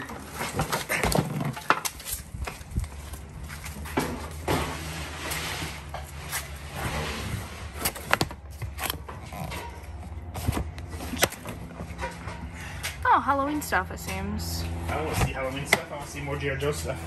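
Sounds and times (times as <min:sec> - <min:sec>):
plastic boxes knocking and clunking: 0:00.0 - 0:02.6
scraping and rustling: 0:00.1 - 0:12.6
steady low hum: 0:01.9 - 0:17.0.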